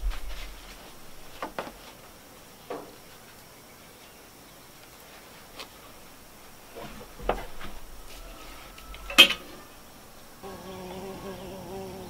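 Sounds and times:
fly buzzing: 0:04.9 - 0:12.0
tableware clinking: 0:09.1 - 0:09.6.

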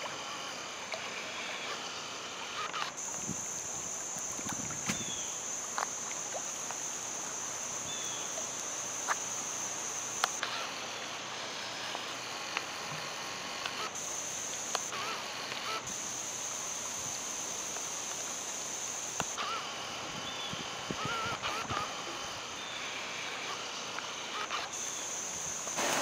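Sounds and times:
high-pitched insect chorus: 0:00.0 - 0:26.0
outdoor ambience: 0:00.0 - 0:26.0
sharp clicks: 0:10.2 - 0:10.6.

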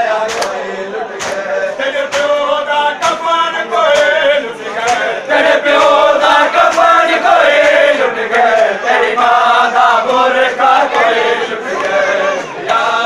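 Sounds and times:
men chanting in unison: 0:00.0 - 0:13.0
hands slapping chests: 0:00.2 - 0:00.6, 0:01.2 - 0:05.1, 0:06.6 - 0:07.8.

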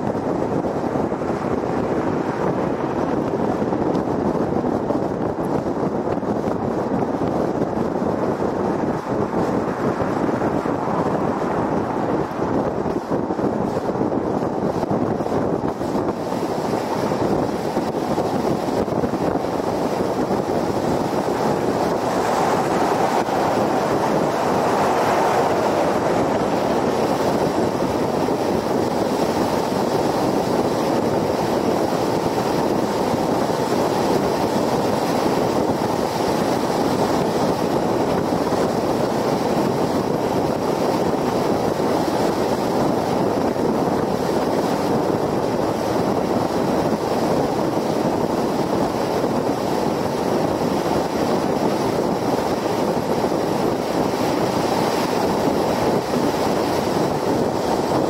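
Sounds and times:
wind rush: 0:00.0 - 0:58.0.

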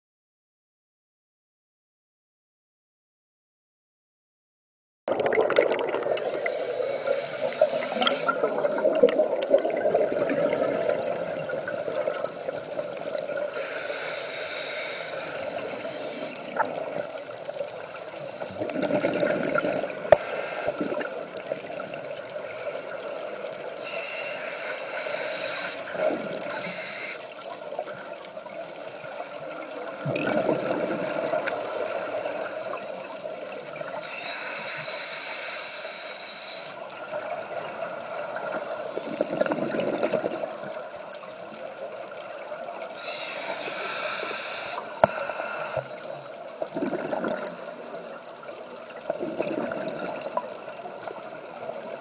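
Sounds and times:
diver exhaling bubbles: 0:05.1 - 0:12.2, 0:18.5 - 0:21.2, 0:30.0 - 0:31.6, 0:39.0 - 0:40.5, 0:46.7 - 0:47.8, 0:49.1 - 0:50.4.

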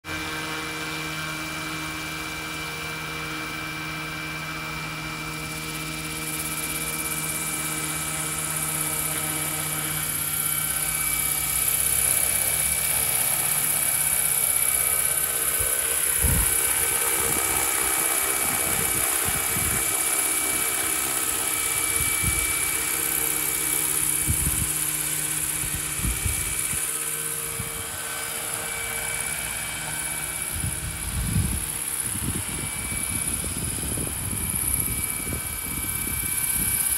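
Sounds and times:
model helicopter rotor whine: 0:00.0 - 0:36.9
wind buffeting microphone: 0:15.6 - 0:20.1, 0:21.6 - 0:22.8, 0:24.0 - 0:28.0, 0:30.4 - 0:36.9.

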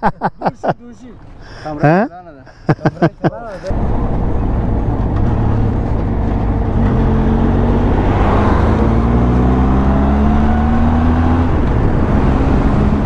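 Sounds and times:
wind rush: 0:03.8 - 0:13.0
motorcycle engine accelerating: 0:05.2 - 0:13.0.

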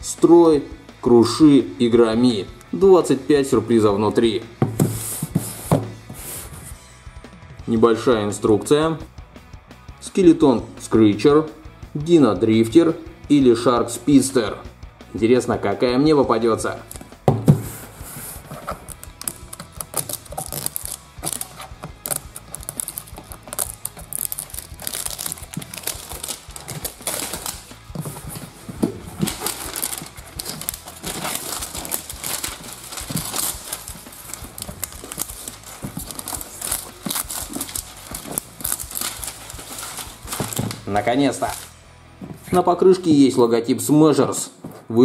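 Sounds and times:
plastic wrap tearing and rustling: 0:17.7 - 0:41.7.

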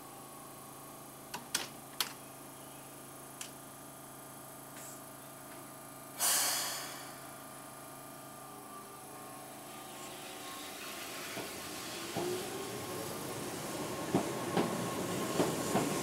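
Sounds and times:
air brakes hissing: 0:06.2 - 0:07.3
train motor hum: 0:06.5 - 0:16.0
train wheel noise: 0:09.4 - 0:16.0.

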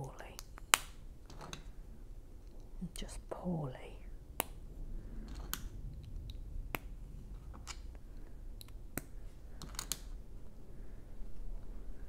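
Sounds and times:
plastic bricks clicking: 0:08.6 - 0:10.1.

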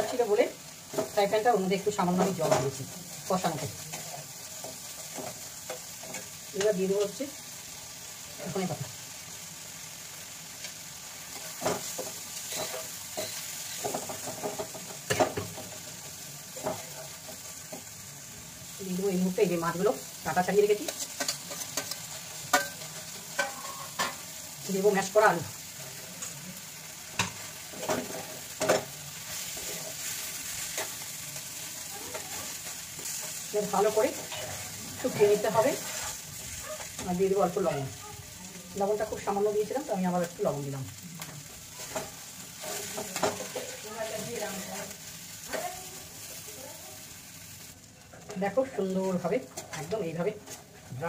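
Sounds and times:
food sizzling: 0:00.0 - 0:51.0
spatula scraping frying pan: 0:03.5 - 0:07.2, 0:10.5 - 0:18.0, 0:20.4 - 0:38.0, 0:41.4 - 0:46.4.

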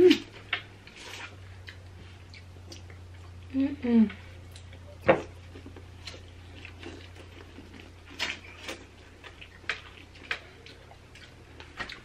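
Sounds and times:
steady low hum: 0:00.0 - 0:12.0
corn on the cob being chewed: 0:05.5 - 0:12.0.

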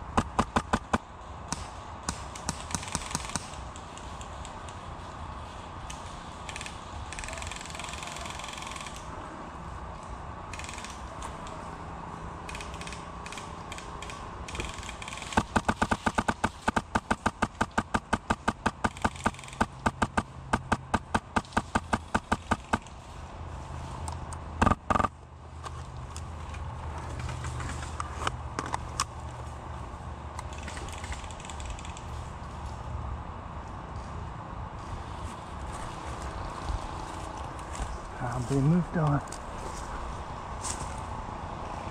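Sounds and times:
airsoft rifle rapid shots: 0:00.2 - 0:03.6, 0:06.5 - 0:09.1, 0:12.5 - 0:22.9.

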